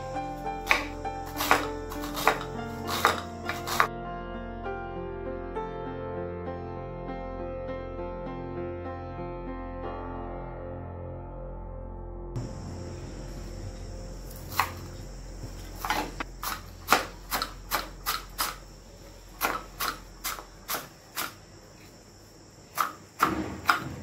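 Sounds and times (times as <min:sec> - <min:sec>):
knife chopping on wooden board: 0:00.6 - 0:03.9, 0:14.4 - 0:14.9, 0:15.8 - 0:18.6, 0:19.4 - 0:21.4, 0:22.7 - 0:24.0.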